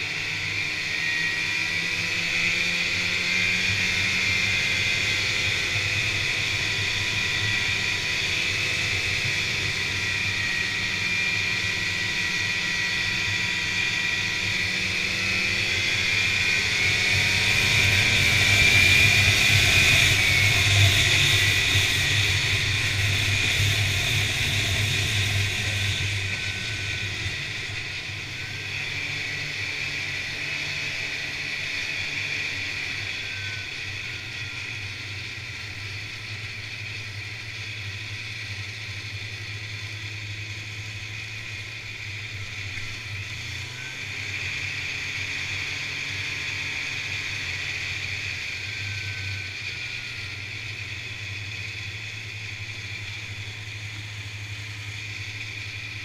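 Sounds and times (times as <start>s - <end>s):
snowmobile engine running: 0.0s - 56.0s.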